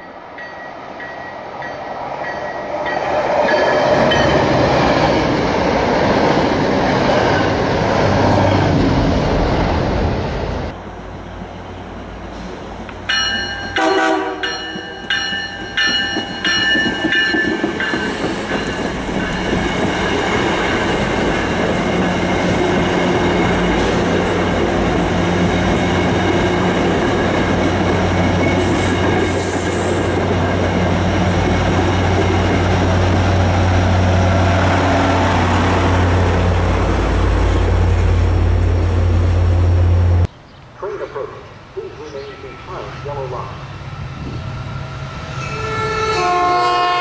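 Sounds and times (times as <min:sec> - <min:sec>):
train rumbling past on rails: 0:00.0 - 0:47.0
train horn short toots: 0:13.8 - 0:14.7, 0:45.4 - 0:47.0.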